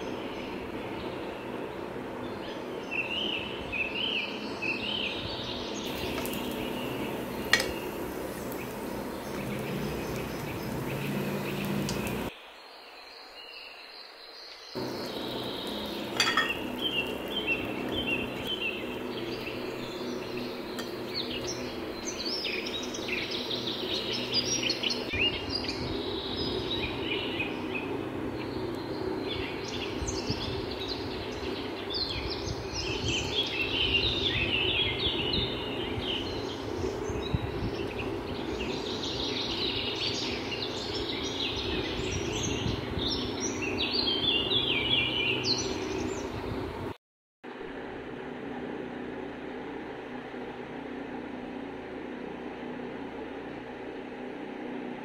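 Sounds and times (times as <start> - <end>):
birds chirping: 0.0 - 46.4
food frying in oil: 5.9 - 12.3, 14.8 - 22.2.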